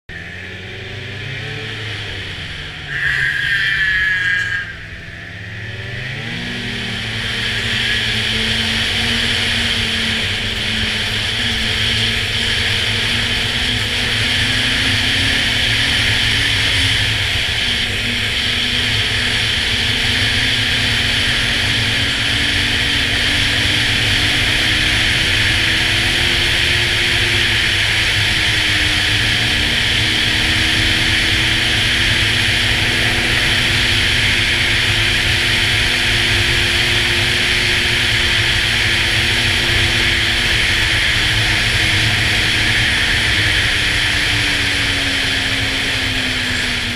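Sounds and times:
snowmobile engine running: 0.1s - 46.9s.

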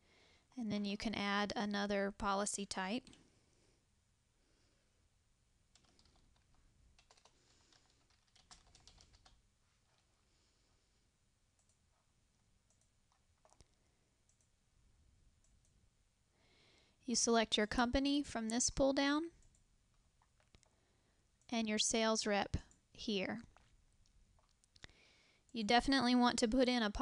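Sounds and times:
keyboard typing clicks: 5.7s - 9.4s.

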